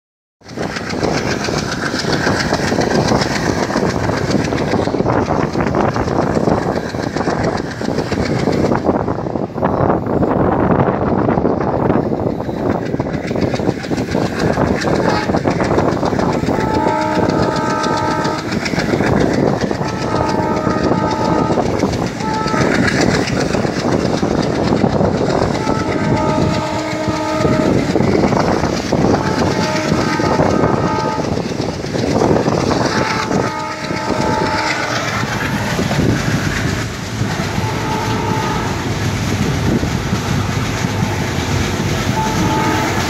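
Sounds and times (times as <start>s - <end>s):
wheels clicking over track: 0.4s - 9.0s, 12.0s - 43.0s
diesel locomotive engine chugging: 0.4s - 43.0s
train rumble and rail noise: 0.4s - 43.0s
train horn blasts: 14.9s - 23.6s, 25.4s - 31.6s, 32.4s - 36.7s, 37.3s - 39.0s, 42.0s - 43.0s.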